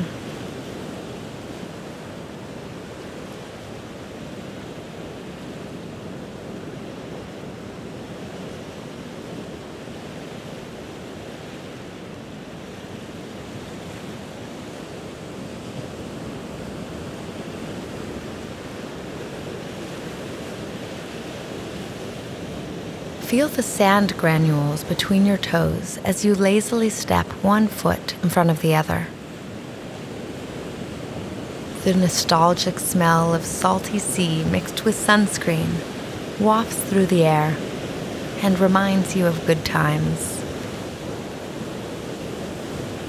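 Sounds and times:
ocean waves washing: 0.0s - 43.0s.

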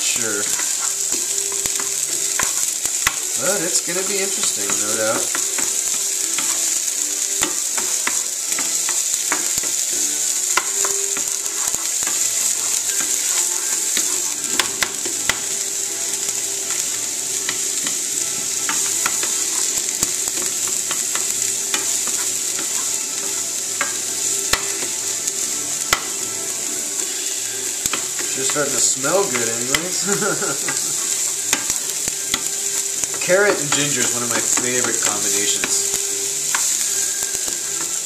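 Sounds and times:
vegetables sizzling in frying pan: 0.0s - 38.0s
wooden spoon scraping a pan: 0.0s - 38.0s.

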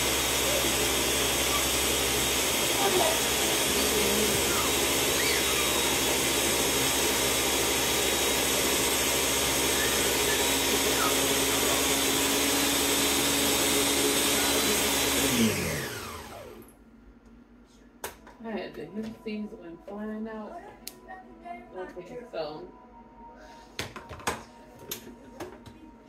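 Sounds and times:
blender motor winding down: 0.0s - 16.7s
blender running: 0.0s - 16.7s.

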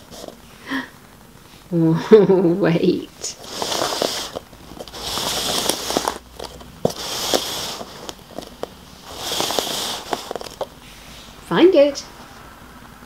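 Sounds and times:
cups scraping across carpet: 3.2s - 11.3s.

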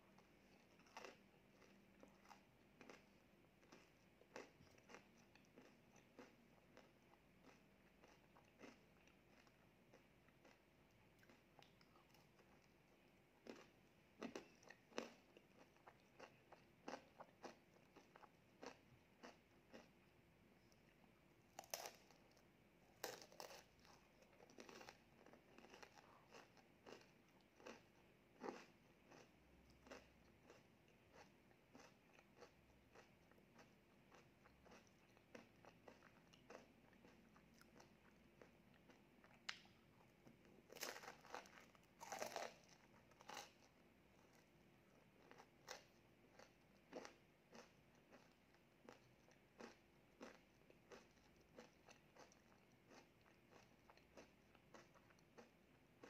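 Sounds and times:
crunching wafer cone: 21.6s - 22.4s, 23.0s - 38.6s, 40.7s - 55.6s.

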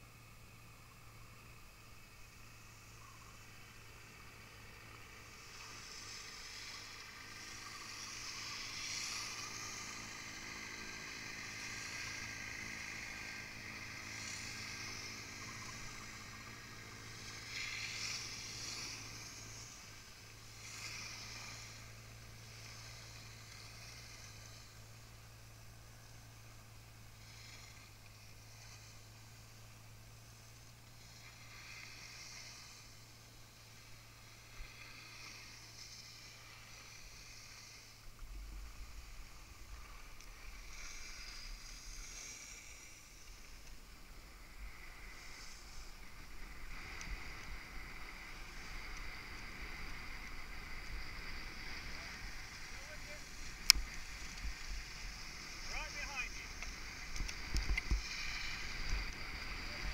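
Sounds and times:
piste groomer engine hum: 0.0s - 59.9s
skis scraping over snow: 5.3s - 24.8s, 33.6s - 59.9s
wind rumble on microphone: 43.8s - 59.9s.

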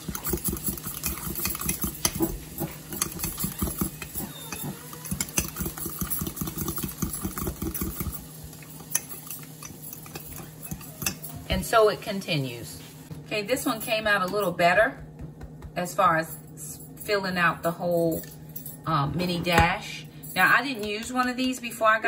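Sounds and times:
fork clinking against glass: 2.9s - 7.2s, 8.8s - 11.4s.

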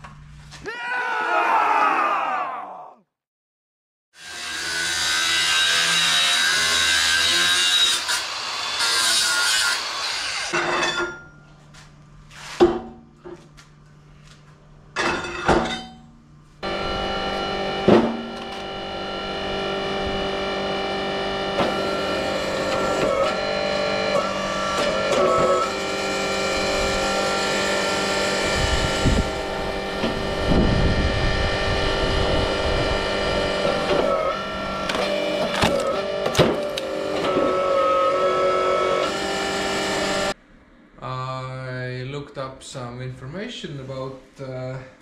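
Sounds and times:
angle grinder grinding steel: 4.2s - 10.6s, 16.6s - 40.4s.

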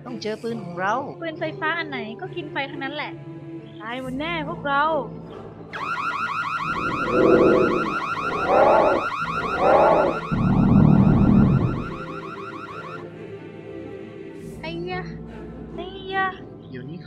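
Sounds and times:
low rumble: 10.3s - 11.9s.

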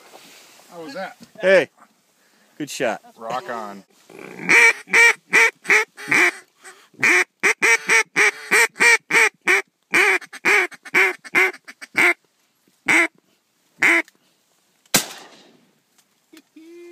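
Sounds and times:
duck call quacks: 4.2s - 12.2s, 12.9s - 13.1s, 13.8s - 14.1s
shotgun blast: 14.9s - 15.6s.

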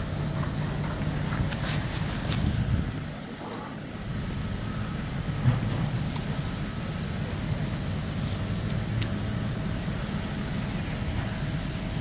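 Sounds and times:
fire engines rumbling: 0.0s - 12.0s
wind buffeting microphone: 0.2s - 3.2s.

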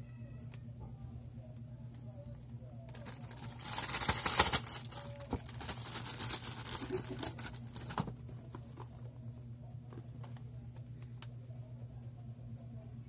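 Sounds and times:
plastic pouch crinkling: 2.9s - 8.0s.

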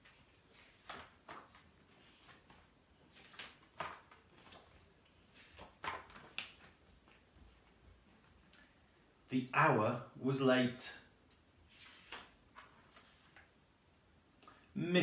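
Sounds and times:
book pages turning: 0.0s - 7.6s, 11.6s - 13.6s.

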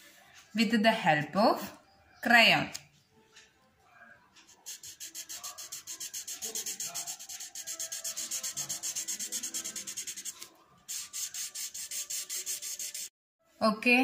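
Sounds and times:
crayon scribbling on paper: 4.5s - 13.1s.

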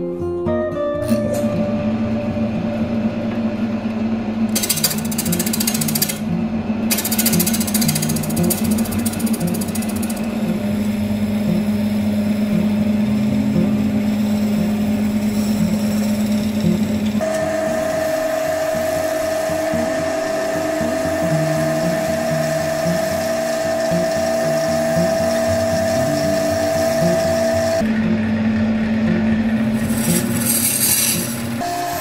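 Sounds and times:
wood lathe whining: 1.6s - 32.0s
tool scraping on wood: 29.8s - 31.6s.

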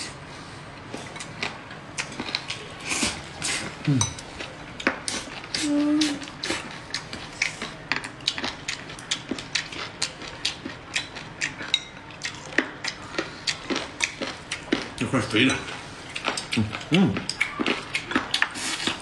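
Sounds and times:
chewing smacks: 1.1s - 15.0s, 16.1s - 19.0s
chopsticks clicking on bowls: 6.9s - 13.0s.

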